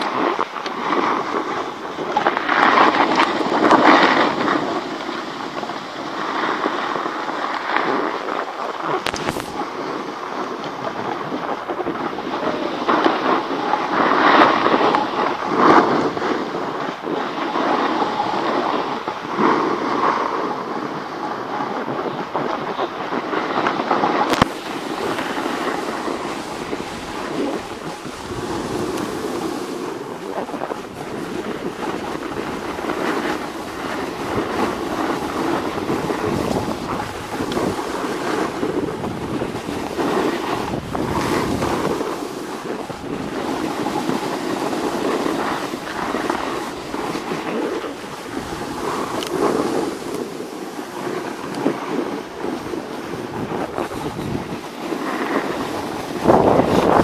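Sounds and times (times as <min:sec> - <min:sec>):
skis scraping over snow: 0:00.0 - 0:57.0
wind buffeting microphone: 0:00.0 - 0:57.0.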